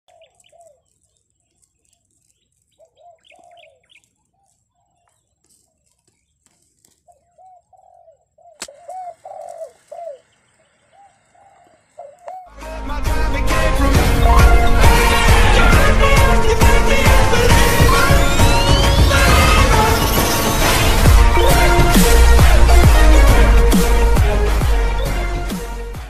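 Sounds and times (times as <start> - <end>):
small bird chirping: 0.0 - 12.5
dove cooing: 2.8 - 5.0, 7.1 - 12.5.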